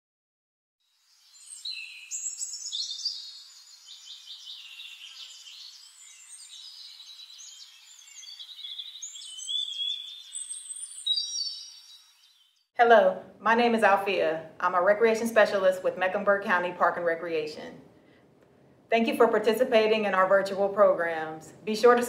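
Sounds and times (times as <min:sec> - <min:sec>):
birds chirping and trilling: 0:01.0 - 0:12.7.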